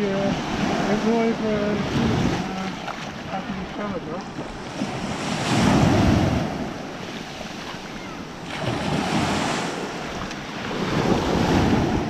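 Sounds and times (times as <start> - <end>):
small waves washing over sand: 0.0 - 12.0.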